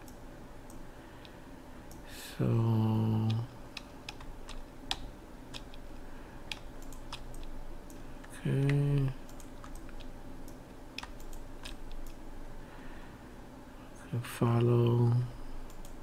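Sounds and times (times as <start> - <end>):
man humming: 2.1 - 3.5, 8.3 - 9.2
computer keyboard and mouse clicks: 3.2 - 5.8, 6.5 - 12.2, 15.6 - 16.0.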